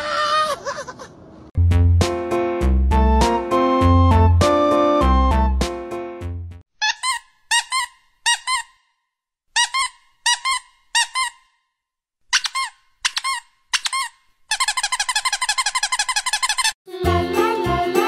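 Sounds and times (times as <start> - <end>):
alpaca squeaking: 9.6 - 11.5, 12.3 - 16.8.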